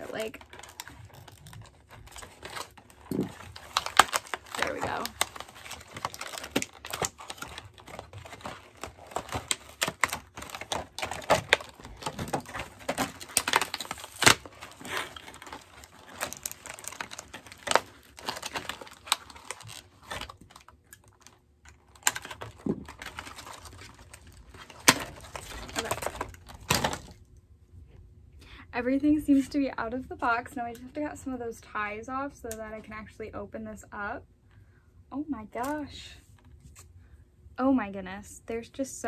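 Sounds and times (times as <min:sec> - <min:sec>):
plastic packaging crinkling: 0:00.0 - 0:27.3
packaging clicks and snaps: 0:00.2 - 0:27.2.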